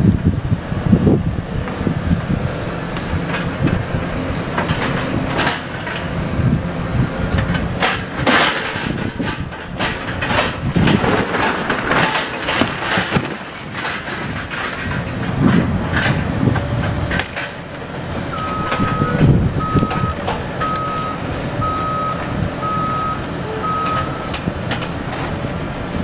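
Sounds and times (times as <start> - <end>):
diesel engine humming: 0.0 - 26.0
roofing debris crashing and clattering: 7.8 - 16.2.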